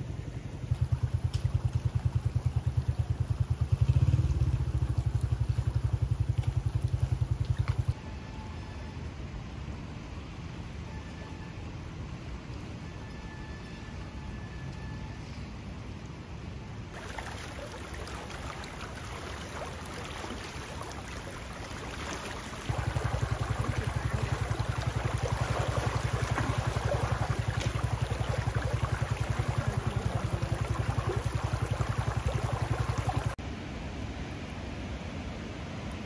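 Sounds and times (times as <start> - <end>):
loud low fluttering rumble: 0.0 - 8.0, 22.4 - 33.4
stream rushing over stones: 17.0 - 33.4.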